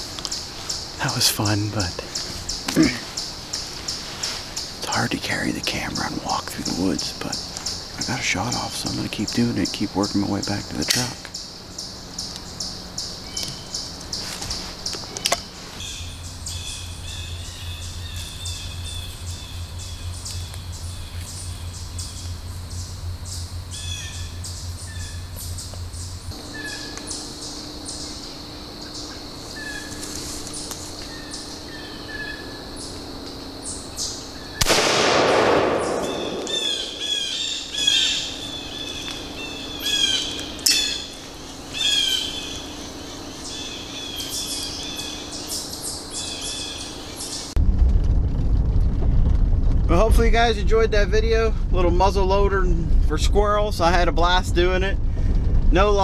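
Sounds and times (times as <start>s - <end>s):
birds chirping: 0.0s - 47.6s
shotgun shot echoing: 34.6s - 37.6s.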